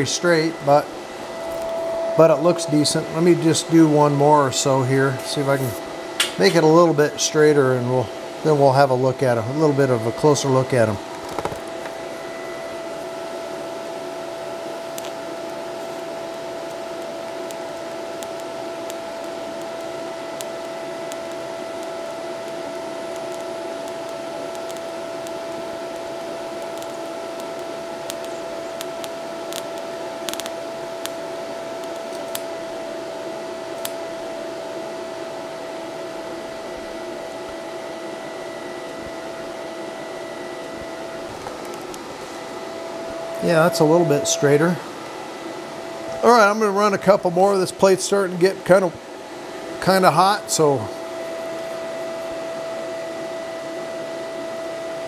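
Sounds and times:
welding arc hissing: 0.0 - 32.7, 33.6 - 34.3, 40.6 - 48.9.

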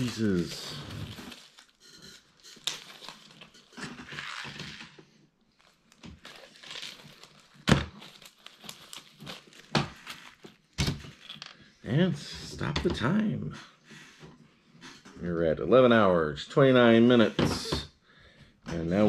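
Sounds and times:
plastic crinkling and rustling: 0.0 - 11.6.

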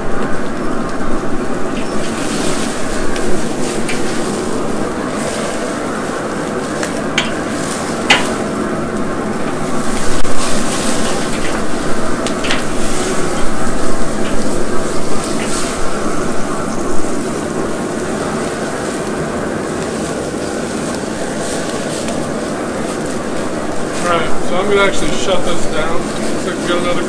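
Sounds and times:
fat crackling over flames: 0.0 - 27.0
steaks sizzling: 0.0 - 27.0
tongs clicking on grate: 7.2 - 7.4.

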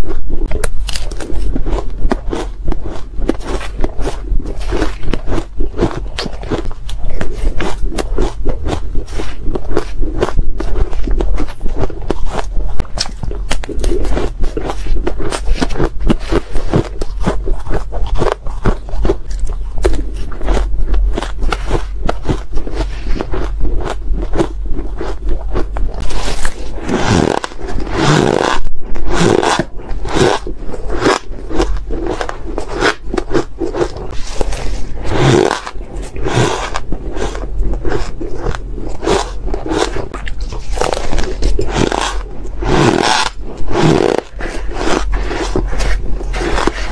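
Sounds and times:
chewing shaved ice: 0.0 - 46.9.

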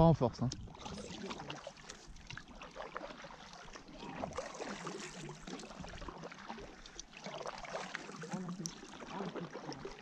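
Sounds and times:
kayak paddle stroking water: 0.0 - 10.0
water dripping off paddle: 0.4 - 10.0.

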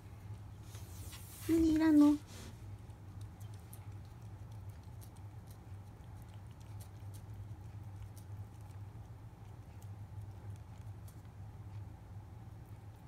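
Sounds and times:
cat licking paste: 2.3 - 12.0.

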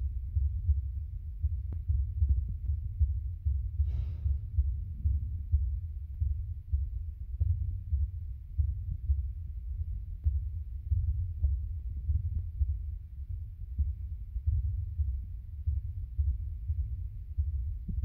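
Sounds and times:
deep low pulsing music: 0.0 - 18.0
short breathy hiss: 3.8 - 4.3.

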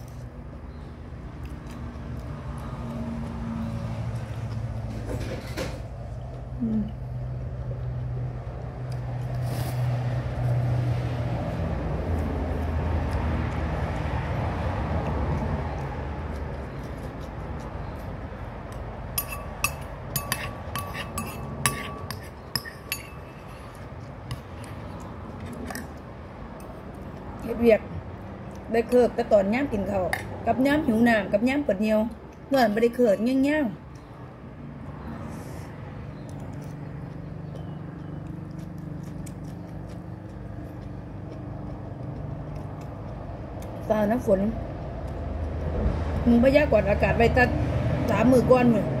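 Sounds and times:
person chewing food: 0.0 - 4.9, 11.4 - 27.4, 28.0 - 28.7, 35.7 - 43.8
cutlery clinking on ceramic dishes: 19.2 - 23.4.

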